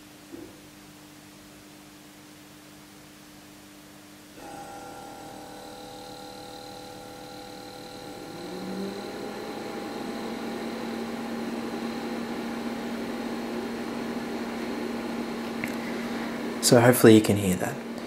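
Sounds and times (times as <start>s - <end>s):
fridge compressor humming: 4.4s - 18.0s.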